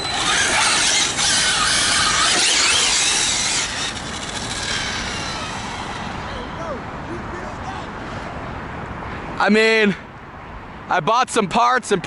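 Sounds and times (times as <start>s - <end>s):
electric motor whine: 0.0s - 6.4s
tires scrubbing on asphalt: 0.0s - 8.3s.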